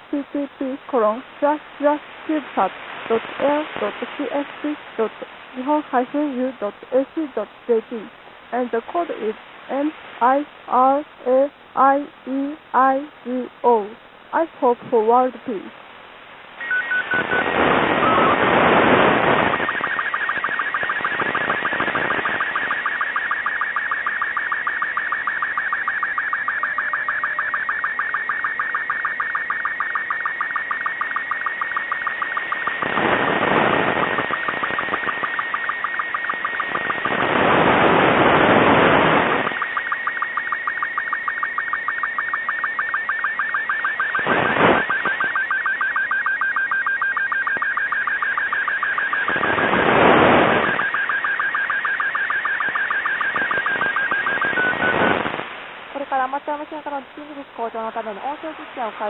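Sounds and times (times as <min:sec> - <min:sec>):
radio static: 0:00.0 - 0:15.7, 0:16.6 - 0:59.0
fast ticking sync pulses: 0:16.6 - 0:55.4
warbling radio picture signal: 0:16.6 - 0:55.6.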